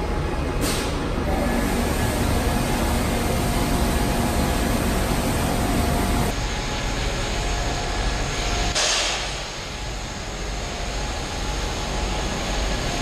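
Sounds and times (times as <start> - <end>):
pump hum: 1.2 - 6.3
water jet spraying hiss: 1.4 - 6.3.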